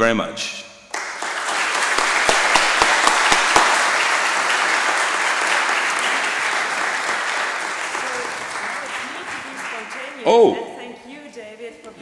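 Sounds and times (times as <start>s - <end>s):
close single claps: 0.9s - 4.2s
audience applauding: 0.9s - 10.8s.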